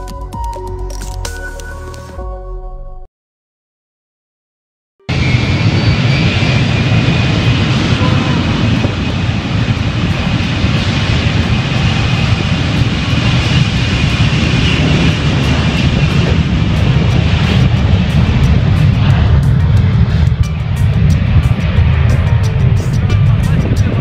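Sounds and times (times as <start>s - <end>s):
high engine whine: 5.1s - 24.0s
jet engines deep rumble: 5.1s - 24.0s.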